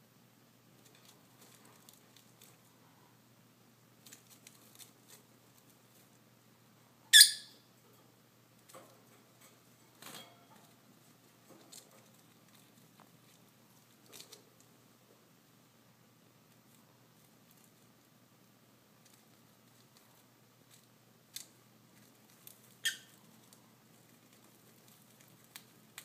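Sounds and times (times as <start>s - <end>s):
bird chewing straw rustles: 0.7s - 2.8s, 3.9s - 6.3s, 10.5s - 15.0s, 16.3s - 26.0s.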